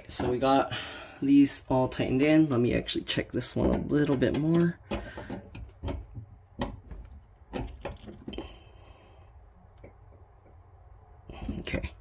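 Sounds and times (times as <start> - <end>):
tool clicking on pipe fittings: 3.4 - 8.3.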